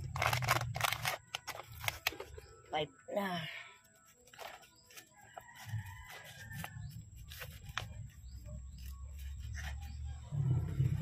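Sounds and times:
low rumble: 10.1s - 11.0s.

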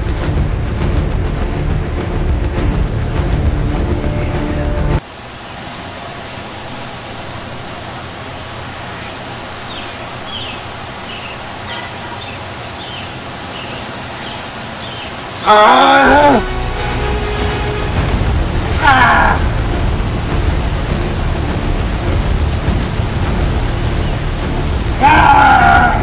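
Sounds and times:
music: 0.0s - 5.0s, 15.9s - 26.0s
outdoor background noise: 0.0s - 26.0s.

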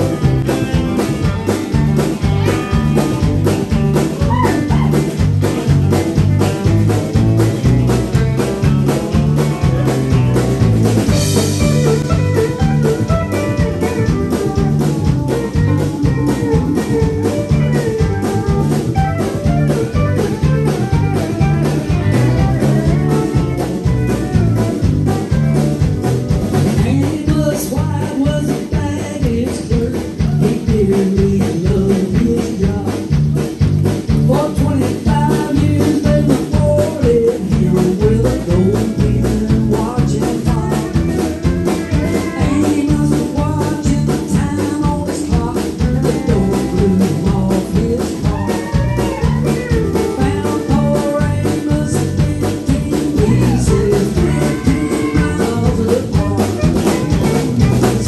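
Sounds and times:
bass guitar: 0.0s - 58.0s
drum kit beat: 0.0s - 58.0s
electric guitar: 0.0s - 58.0s
person singing: 26.7s - 33.2s, 34.2s - 58.0s.

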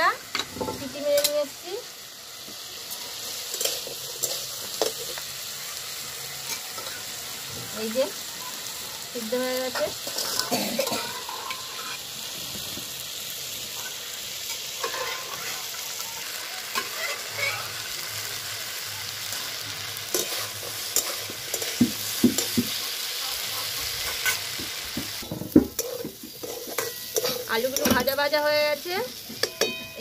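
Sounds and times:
potatoes sizzling in oil: 0.0s - 30.0s
steel spatula scraping a pan: 9.6s - 12.0s, 14.5s - 15.6s, 20.1s - 22.8s, 23.5s - 24.6s, 25.2s - 28.4s.

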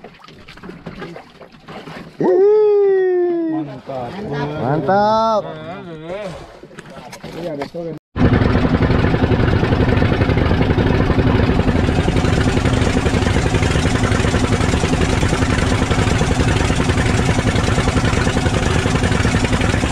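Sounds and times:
boat engine running: 8.2s - 19.9s
hull splashing through waves: 8.9s - 19.9s.

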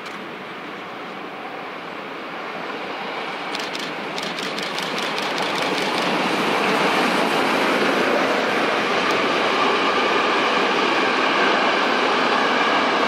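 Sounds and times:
steam locomotive passing: 0.0s - 13.0s
sharp ticks: 3.5s - 6.2s.

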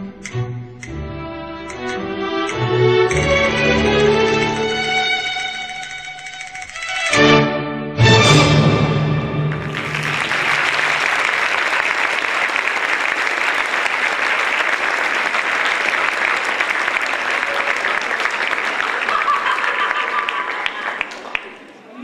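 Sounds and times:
audience applause: 9.2s - 22.0s.

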